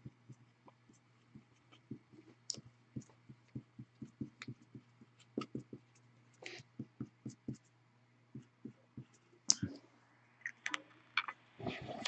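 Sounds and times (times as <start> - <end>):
marker pen writing: 0.0 - 7.7, 8.3 - 9.3.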